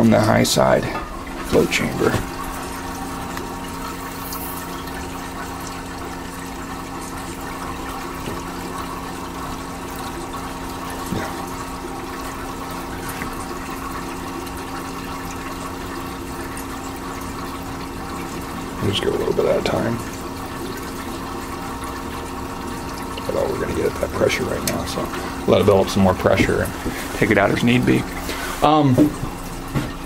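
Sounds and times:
refrigerator hum: 0.0 - 30.0
refrigerant rushing through hose: 23.2 - 28.9.

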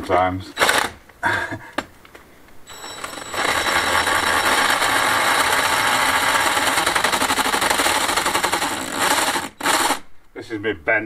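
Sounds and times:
hammer drill boring into stone: 0.6 - 1.0, 2.7 - 10.0.

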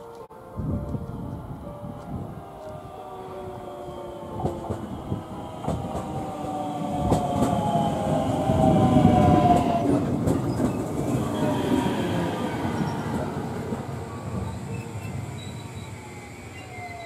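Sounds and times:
train wheel rumble: 0.0 - 17.0
wheels clicking over rail joints: 2.0 - 11.9.

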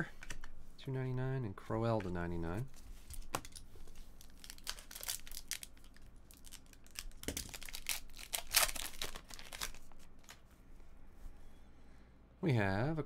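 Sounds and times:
foil wrapper crinkling and tearing: 4.2 - 10.4.

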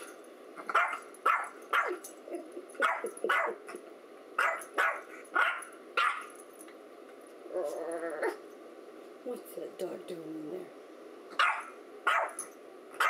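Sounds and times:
small dog barking: 0.6 - 2.0, 2.8 - 3.7, 4.4 - 6.3, 11.4 - 13.0.

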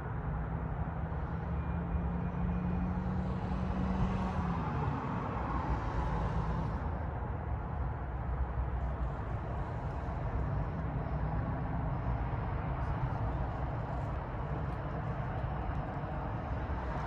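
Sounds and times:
road noise: 0.0 - 17.0
motor vehicle engine hum: 8.3 - 17.0.

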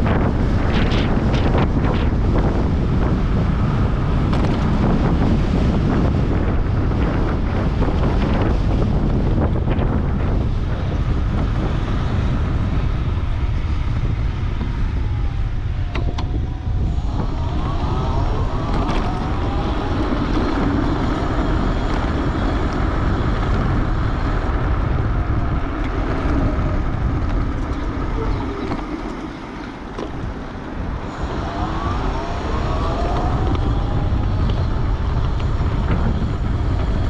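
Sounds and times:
wind buffeting microphone: 0.0 - 37.0.

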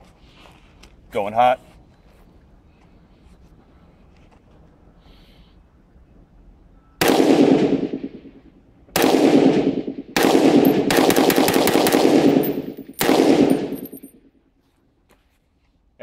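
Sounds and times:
rifle shots: 7.0 - 14.1.

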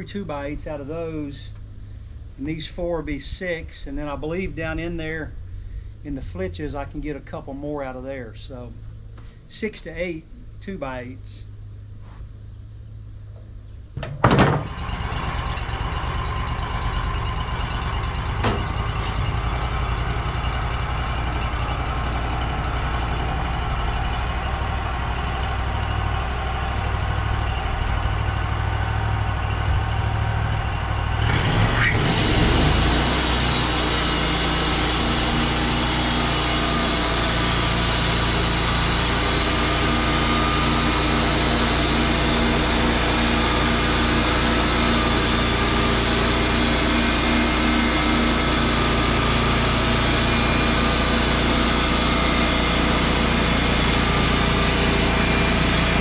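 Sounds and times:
sawmill engine running: 14.0 - 56.0
saw blade cutting log: 31.2 - 56.0.

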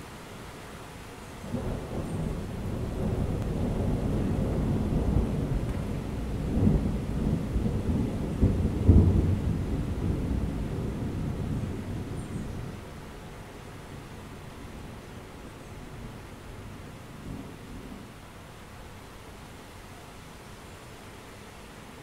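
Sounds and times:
steady rain: 0.0 - 22.0
thunder rumbling: 1.4 - 12.7.

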